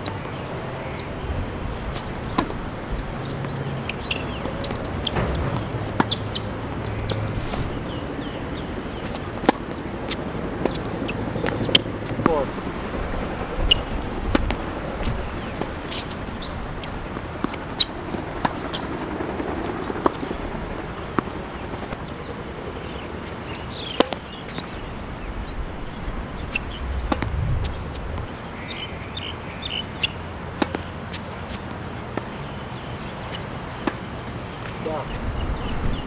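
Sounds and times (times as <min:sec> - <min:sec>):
steady outdoor hiss: 0:00.0 - 0:36.0
tennis ball struck by racquets: 0:01.8 - 0:08.0, 0:09.0 - 0:12.5, 0:14.3 - 0:14.6, 0:16.8 - 0:18.9, 0:19.9 - 0:20.3, 0:24.0 - 0:24.7, 0:26.5 - 0:28.0, 0:30.0 - 0:32.3, 0:33.3 - 0:34.1
ball bouncing on hard court: 0:03.2 - 0:07.7, 0:27.0 - 0:27.8.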